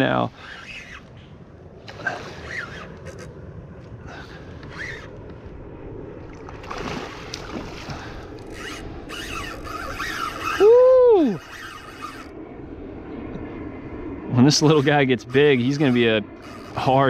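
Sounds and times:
wind: 0:00.0 - 0:17.0
fishing reel drag giving line: 0:07.2 - 0:12.4, 0:14.4 - 0:17.0.

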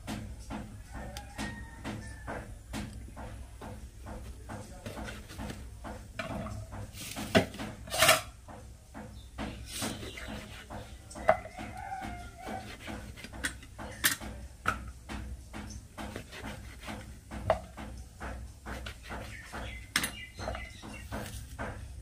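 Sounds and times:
knife cutting vegetable: 0:09.7 - 0:14.2, 0:15.6 - 0:20.2.

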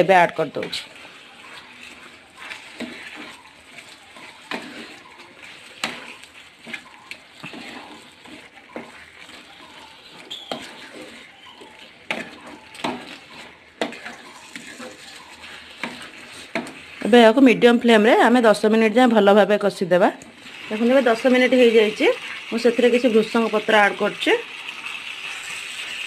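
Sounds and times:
wooden spatula stirring in pan: 0:00.0 - 0:18.9, 0:20.2 - 0:26.0
spatula scraping and knocking pan: 0:00.6 - 0:17.6.

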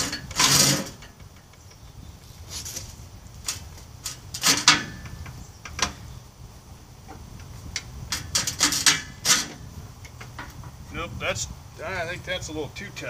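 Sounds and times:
metal clanks and scraping: 0:00.0 - 0:01.6, 0:02.5 - 0:06.2, 0:07.0 - 0:10.8.

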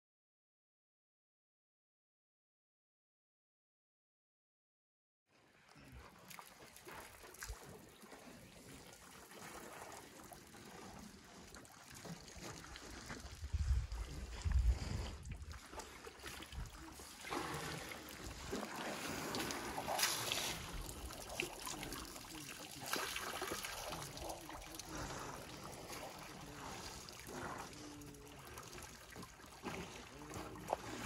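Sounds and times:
water trickling and splashing: 0:05.4 - 0:31.0
wind on microphone: 0:13.1 - 0:15.7.

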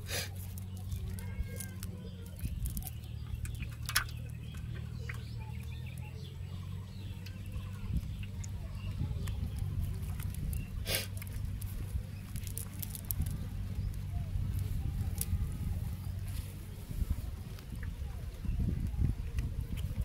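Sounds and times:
nylon net and leaves rustling: 0:00.0 - 0:06.0, 0:08.6 - 0:18.8
steady low rumble: 0:00.0 - 0:20.0
bird chirps: 0:00.6 - 0:11.0.

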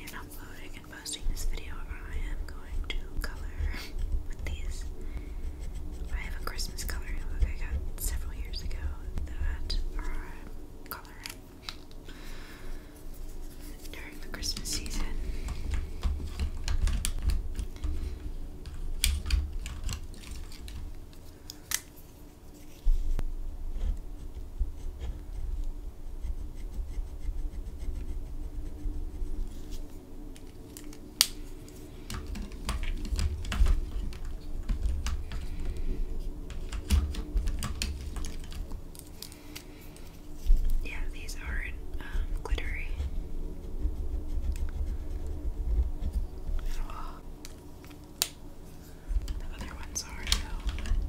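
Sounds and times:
pens rubbing on paper: 0:01.0 - 0:09.8, 0:13.0 - 0:21.3, 0:23.8 - 0:31.0, 0:31.6 - 0:40.8, 0:42.6 - 0:47.2, 0:48.7 - 0:51.0.

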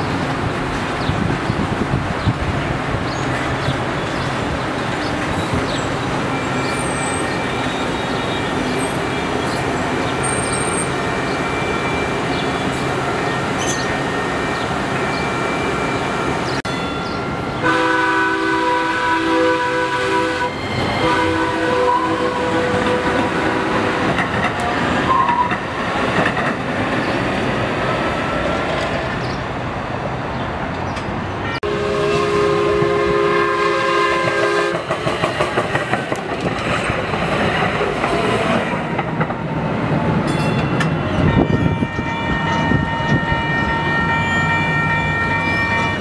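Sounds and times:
train horn: 0:17.6 - 0:24.1, 0:31.5 - 0:34.9, 0:41.1 - 0:46.0
train wheels on rails: 0:19.8 - 0:29.5, 0:32.0 - 0:46.0.

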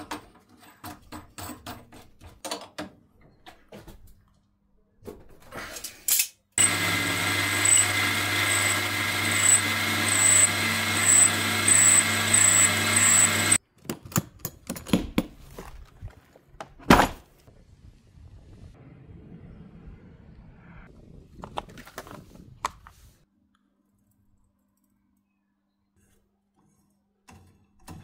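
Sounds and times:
electric power tool running: 0:06.6 - 0:13.6.

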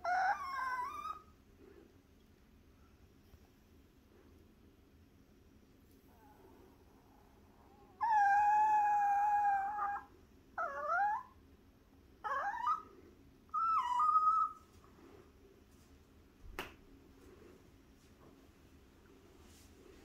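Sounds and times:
small dog whining: 0:00.0 - 0:01.3, 0:07.4 - 0:11.4, 0:12.2 - 0:12.9, 0:13.5 - 0:14.7.

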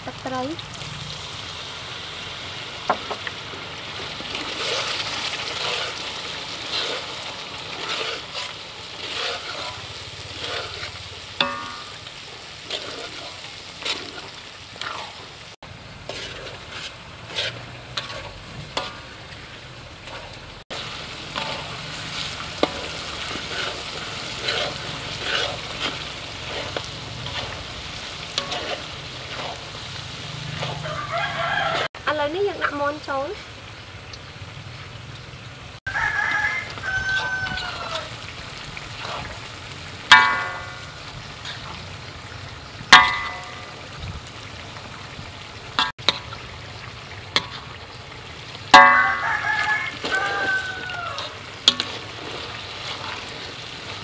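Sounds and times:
paste sizzling in oil: 0:00.0 - 0:34.7, 0:35.8 - 0:54.0
metal spatula scraping wok: 0:03.9 - 0:31.9, 0:36.2 - 0:39.5, 0:40.1 - 0:41.9, 0:47.3 - 0:47.9, 0:48.7 - 0:54.0
spatula clinking against wok: 0:11.4 - 0:12.0, 0:40.1 - 0:41.0, 0:43.0 - 0:43.8, 0:48.8 - 0:49.7.

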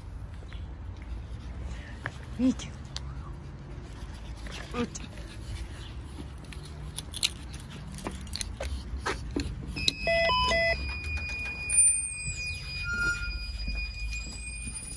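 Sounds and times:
door intercom beeping: 0:09.8 - 0:14.9
steady high tone: 0:09.8 - 0:14.9.

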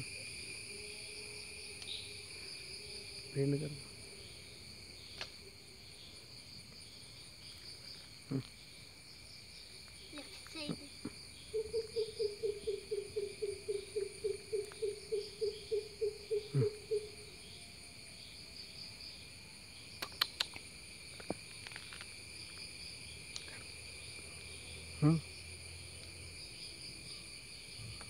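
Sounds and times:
shrill insect chorus: 0:00.0 - 0:28.0
sharp clicks: 0:20.0 - 0:20.6.

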